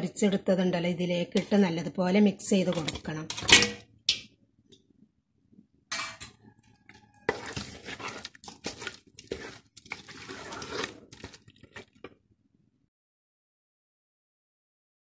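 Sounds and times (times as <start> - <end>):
spoon stirring thick sauce in pot: 2.5 - 3.7, 6.2 - 12.2.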